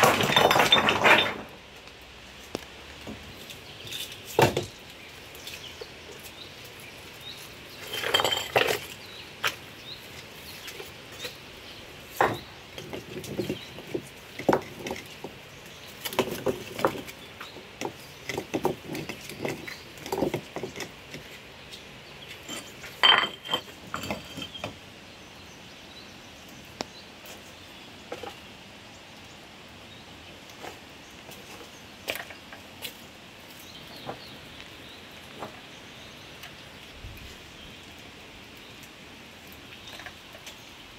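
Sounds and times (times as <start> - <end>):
stones knocking and scraping: 0.0 - 6.4, 7.2 - 11.4, 12.1 - 24.8.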